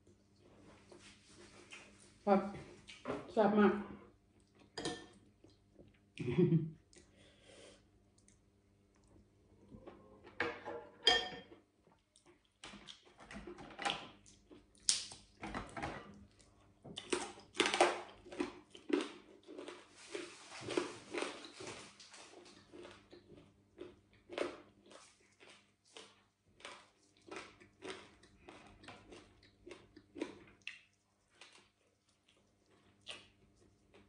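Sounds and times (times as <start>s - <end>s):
person chewing crunchy food: 11.5s - 13.2s, 14.1s - 15.4s, 16.2s - 34.0s.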